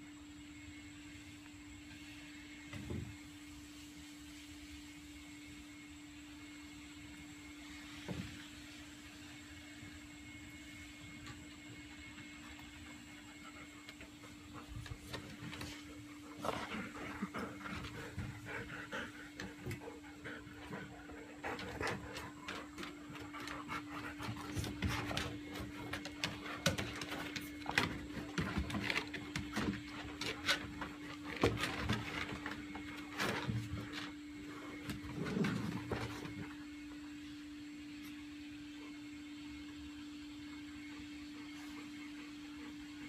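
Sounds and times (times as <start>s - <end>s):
dogs panting: 12.3s - 34.1s
dogs scuffling: 14.0s - 36.6s.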